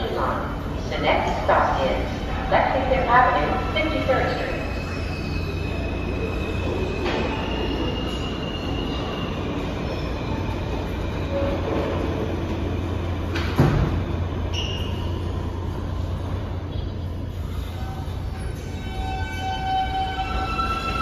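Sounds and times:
subway train equipment hum: 0.0s - 21.0s
train doors closing with thud: 11.3s - 15.0s.

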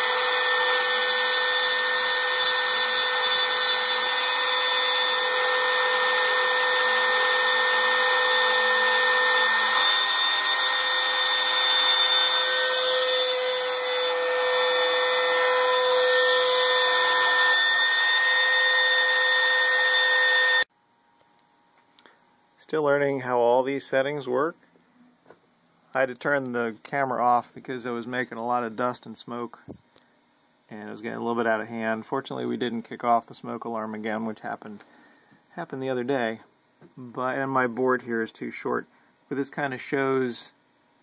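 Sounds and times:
router bit cutting wood: 0.0s - 20.7s
router motor high whine: 0.0s - 20.7s.

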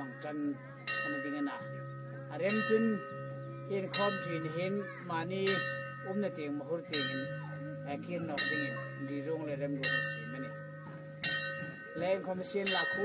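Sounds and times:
bell-like chime ringing: 0.0s - 13.0s.

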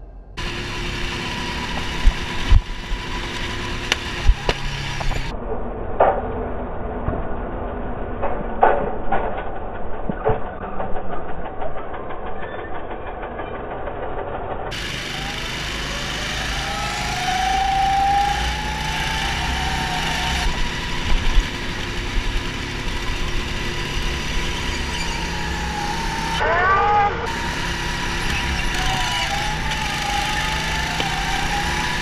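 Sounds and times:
kart engine whine: 0.1s - 5.4s, 12.3s - 32.0s
go-kart engines running: 0.4s - 5.4s, 9.8s - 32.0s.

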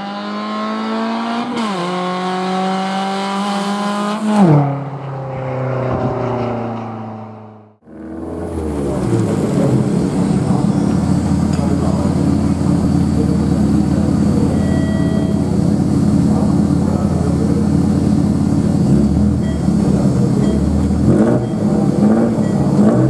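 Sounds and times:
race car engine passing: 0.0s - 23.0s
race car engine idling: 7.9s - 23.0s.

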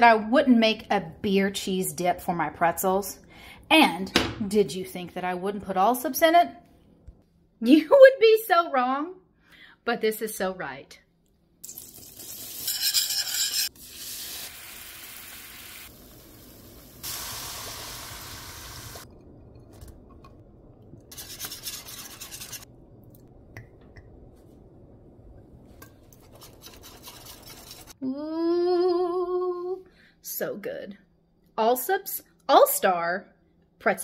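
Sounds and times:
light sizzle: 11.6s - 21.1s
whisk scraping in a skillet: 21.1s - 22.7s, 26.2s - 28.0s.

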